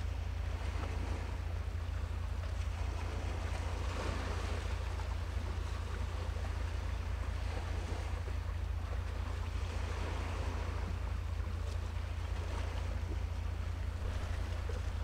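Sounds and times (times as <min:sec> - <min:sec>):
seaside ambience: 0:00.0 - 0:15.0.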